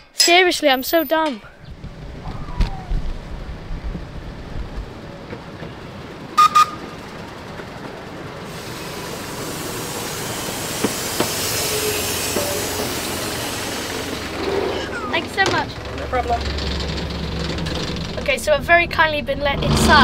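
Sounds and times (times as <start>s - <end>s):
train running noise: 1.7s - 20.0s
locomotive whistle toots: 6.4s - 7.0s, 8.6s - 13.8s.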